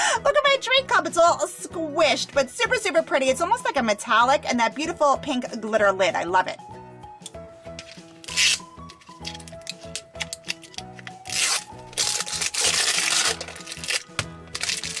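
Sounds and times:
background music: 0.0s - 15.0s
wrapping crinkling and tearing: 7.8s - 15.0s.

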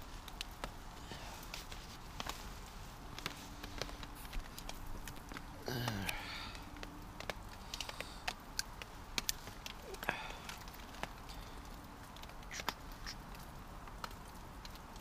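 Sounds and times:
low grunt: 5.6s - 6.6s.

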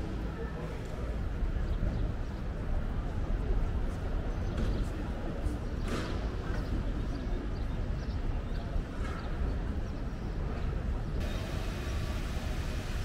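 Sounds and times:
low city rumble: 0.0s - 13.0s
hissy background: 11.2s - 13.0s.

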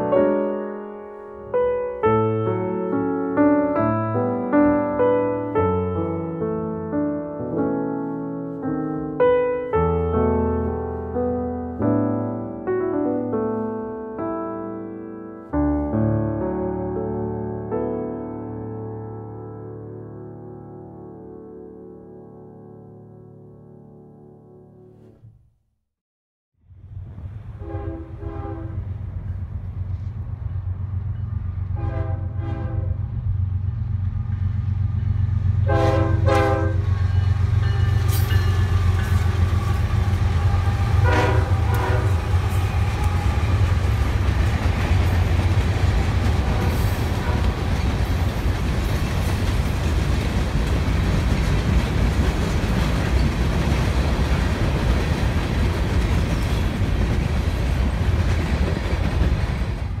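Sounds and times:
locomotive engine rumble: 26.8s - 59.8s
locomotive horn: 27.6s - 29.0s, 31.7s - 33.0s, 35.6s - 44.8s, 46.4s - 47.9s
train wheels rumbling and clattering: 28.8s - 31.8s, 36.8s - 60.0s.

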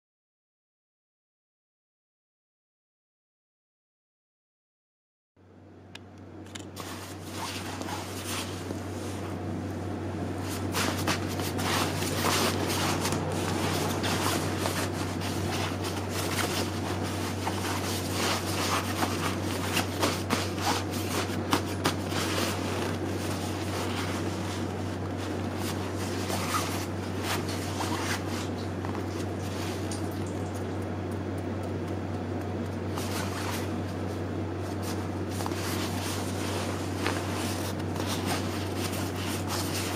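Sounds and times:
steady low hum: 5.4s - 39.9s
nylon fabric rustling and crinkling: 6.8s - 9.4s, 10.4s - 30.6s, 32.8s - 39.9s.

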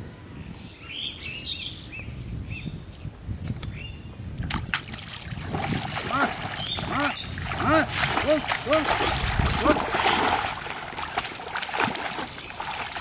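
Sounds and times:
small birds chirping: 6.5s - 7.5s.

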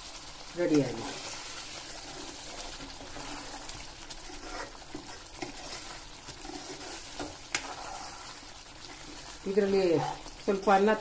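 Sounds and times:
spoon stirring thick curry: 1.2s - 9.5s.

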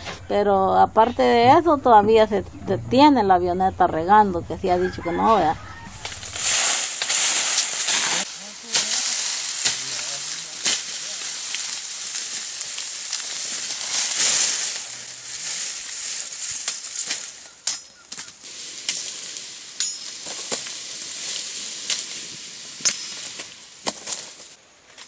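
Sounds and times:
dry leaves rustling and crackling: 5.6s - 25.0s
machete chopping cane: 6.0s - 11.7s, 19.8s - 20.8s, 22.8s - 25.0s.

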